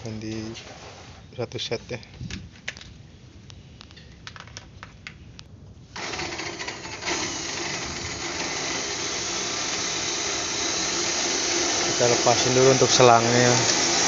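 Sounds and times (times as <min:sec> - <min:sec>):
loud steady machine noise: 0:06.0 - 0:14.0.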